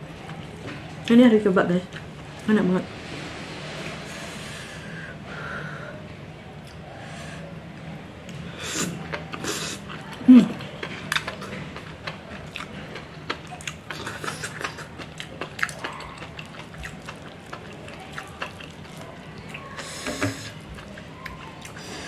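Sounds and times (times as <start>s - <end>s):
close chewing with mouth clicks: 8.7s - 22.0s.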